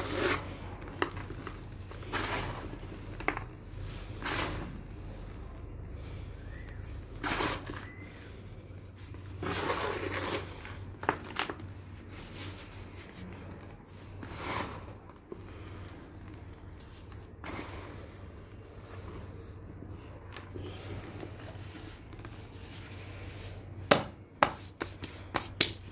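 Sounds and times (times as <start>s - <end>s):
hands crushing dry cement lumps: 0.0s - 18.5s
steady low hum: 0.0s - 25.9s.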